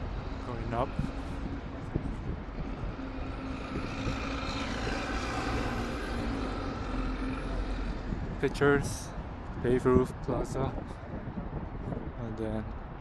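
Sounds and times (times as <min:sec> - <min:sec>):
street traffic: 0:00.0 - 0:13.0
motor vehicle passing: 0:00.2 - 0:08.5.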